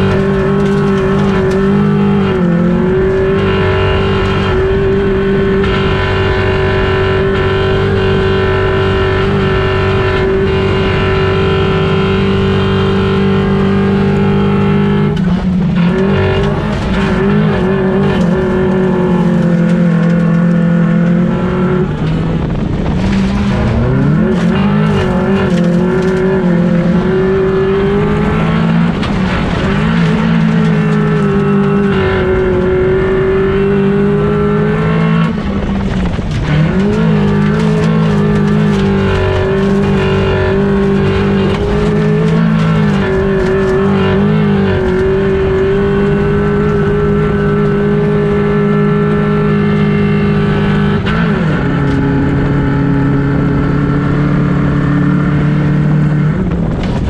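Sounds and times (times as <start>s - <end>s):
race car engine at high revs: 0.0s - 57.0s.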